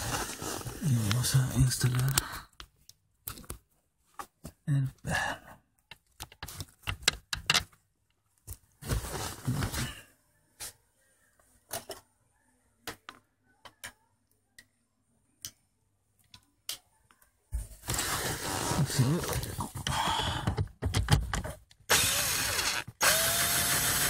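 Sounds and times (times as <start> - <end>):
clicks and knocks of parts: 5.9 - 8.6
rustling scrape: 17.7 - 19.6.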